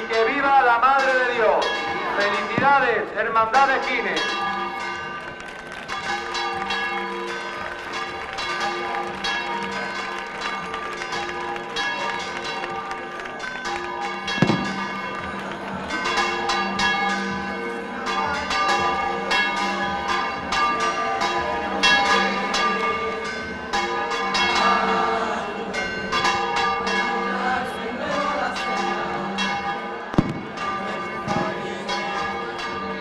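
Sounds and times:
church bells pealing: 0.0s - 33.0s.

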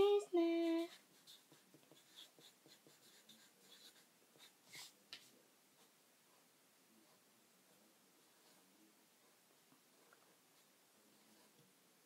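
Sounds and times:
felt-tip marker scratching on paper: 0.4s - 5.0s.

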